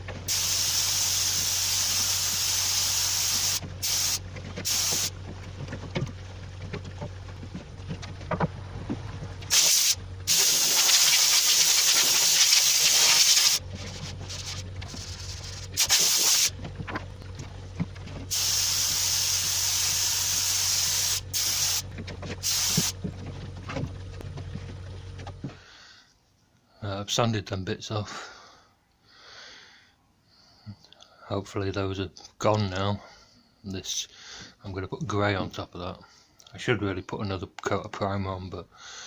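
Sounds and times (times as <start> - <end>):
low steady hum: 0.0 - 27.7
paint spray gun hissing: 0.3 - 5.1, 9.5 - 13.6, 14.3 - 16.5, 18.3 - 21.8, 22.4 - 23.0.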